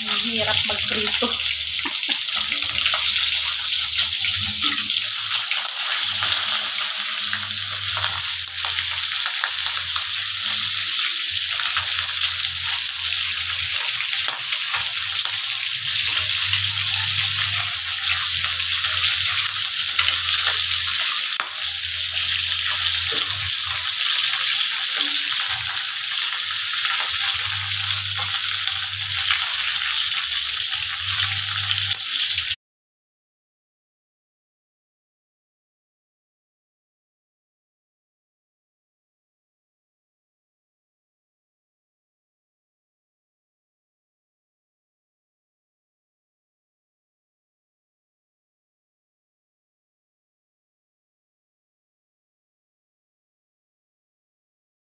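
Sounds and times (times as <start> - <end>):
fish frying in hot oil: 0.0 - 32.6
spatula turning fish in pan: 0.0 - 32.6.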